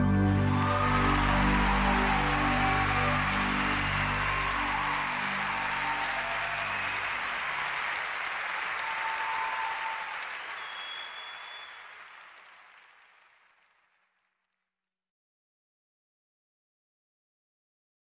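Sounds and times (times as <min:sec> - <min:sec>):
audience applause: 0:00.0 - 0:14.3.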